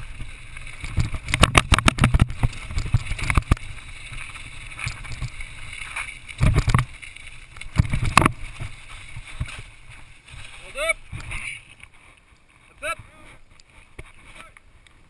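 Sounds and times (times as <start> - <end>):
mountain bike rattling over rocks: 0.0 - 11.8
wind on microphone: 0.0 - 11.8.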